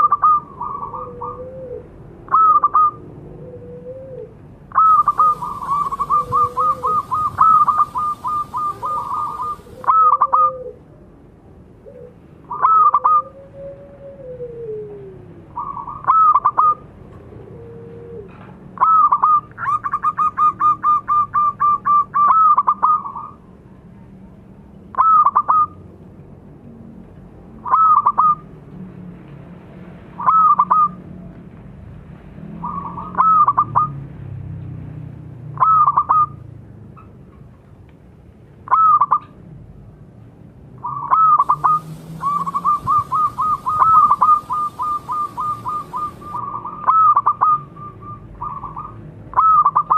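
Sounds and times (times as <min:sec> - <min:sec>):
dove cooing: 0:00.0 - 0:10.9, 0:11.8 - 0:23.4, 0:41.0 - 0:49.9.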